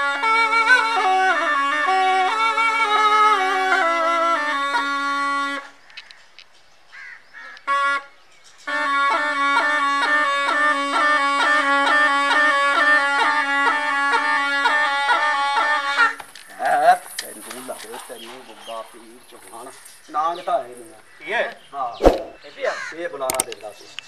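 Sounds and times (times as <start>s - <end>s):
reed pipe melody: 0.0s - 5.8s, 7.6s - 17.4s.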